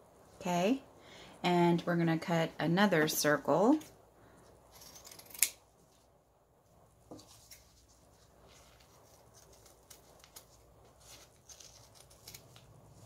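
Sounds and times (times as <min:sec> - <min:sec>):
scissors cutting felt: 0:04.8 - 0:05.6.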